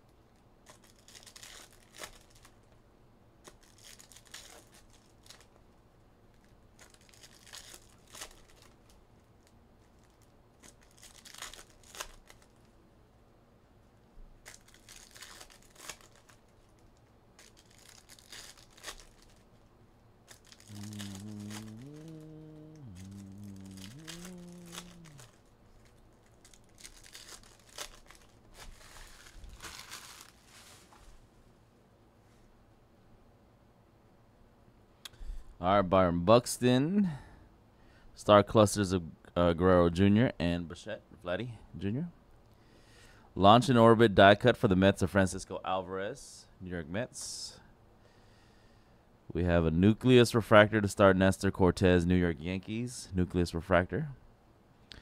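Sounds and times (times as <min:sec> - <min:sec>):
foil wrappers crinkling: 0:00.6 - 0:02.6, 0:03.4 - 0:05.6, 0:06.3 - 0:12.8, 0:14.4 - 0:19.6, 0:20.3 - 0:31.2
low hum: 0:19.9 - 0:26.0.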